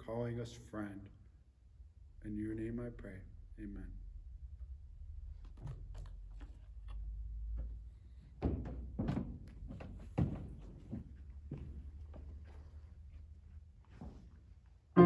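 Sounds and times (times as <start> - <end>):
footsteps dull thuds: 5.4 - 14.6.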